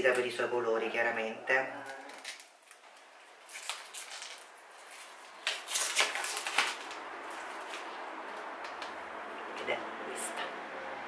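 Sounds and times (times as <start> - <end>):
cardboard rustling and scraping: 3.5 - 8.0.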